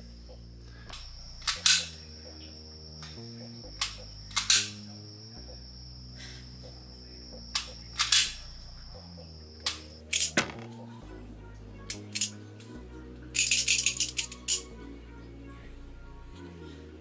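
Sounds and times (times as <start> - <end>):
pistol trigger clicks: 13.4 - 14.6.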